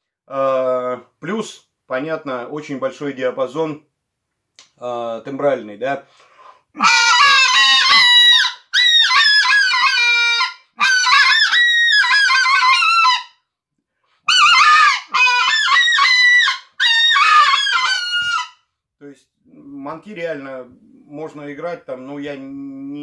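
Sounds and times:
goose call honks and clucks: 6.8 - 13.3, 14.3 - 18.5.

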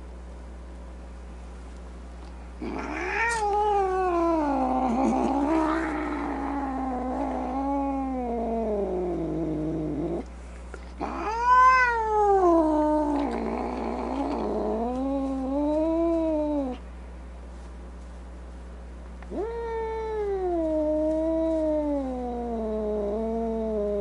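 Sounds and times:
cat yowling: 2.6 - 9.1, 11.0 - 16.8, 19.3 - 24.0.

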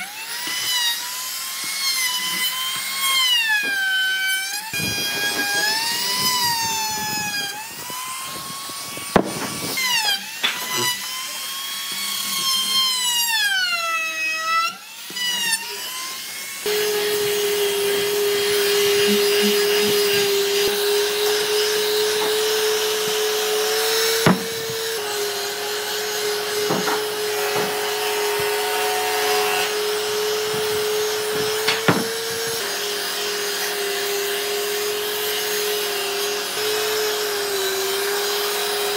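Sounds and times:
router whining: 0.0 - 38.9
palm sander rasping on wood: 4.7 - 13.6, 15.1 - 38.9
sharp knocks: 9.1 - 9.7, 23.9 - 25.0, 26.5 - 27.9, 30.4 - 32.6.

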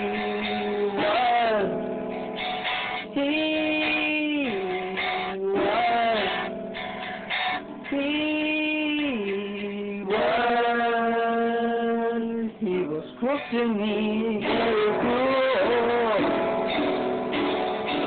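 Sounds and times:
man singing long notes: 0.0 - 1.9, 3.1 - 6.5, 7.9 - 16.6
music: 0.0 - 18.0.

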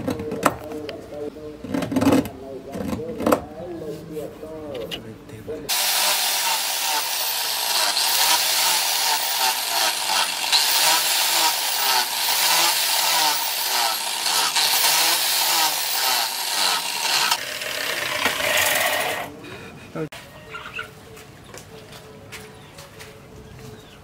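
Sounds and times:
angle grinder motor whine: 5.7 - 19.3
grinding disc on metal: 5.7 - 19.3.

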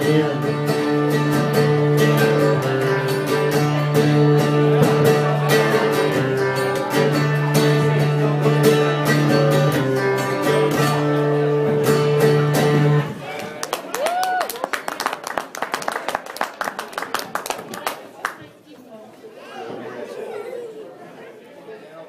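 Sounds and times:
acoustic guitar strumming: 0.0 - 13.3.

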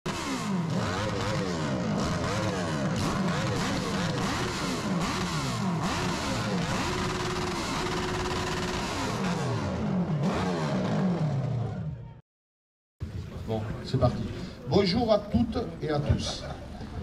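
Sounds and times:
off-road engines revving: 0.1 - 11.9.

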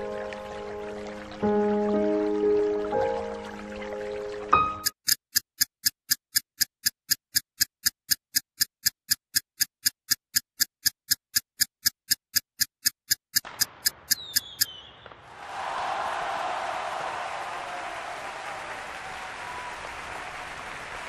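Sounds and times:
timer ticking: 4.5 - 14.8
short falling whistle: 14.1 - 15.1.

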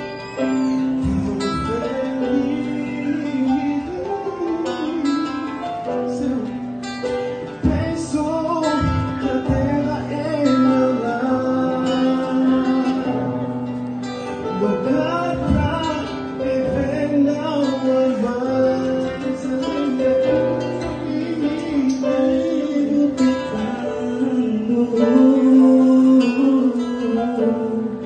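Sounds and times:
male vocal group singing in harmony: 1.0 - 5.2, 14.6 - 28.0.

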